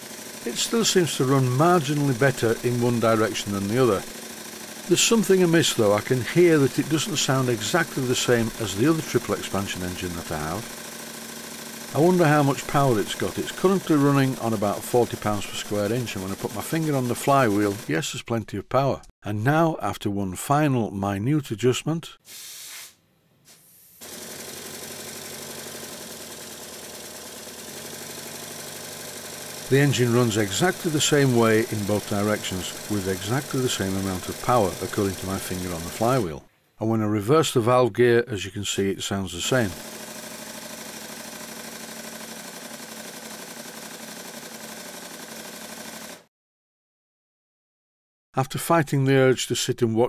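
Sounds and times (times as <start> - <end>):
model steam engine running: 0.0 - 17.9, 24.0 - 36.3, 39.6 - 46.2
hiss of air: 22.2 - 24.0.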